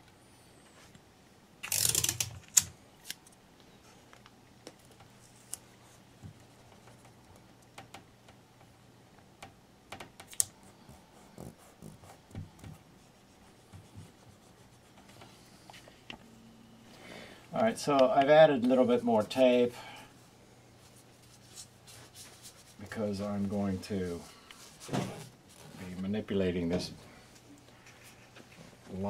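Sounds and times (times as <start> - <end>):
tape ripping off roll: 1.6 - 2.7
tape clicks and rubs: 1.6 - 3.4.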